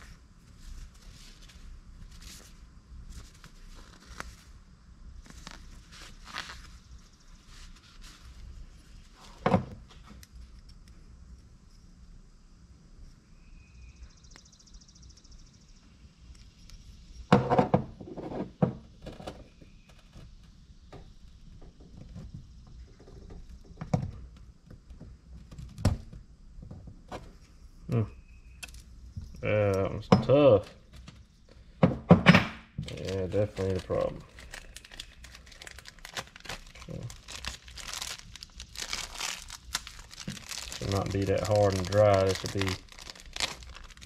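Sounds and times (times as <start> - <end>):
knocks and clunks on workbench: 9.4 - 9.8, 17.3 - 18.8, 31.8 - 32.6.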